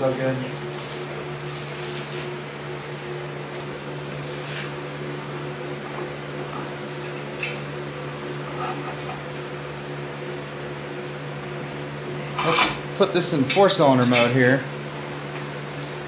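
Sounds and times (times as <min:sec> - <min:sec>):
fan motor humming: 0:00.0 - 0:16.0.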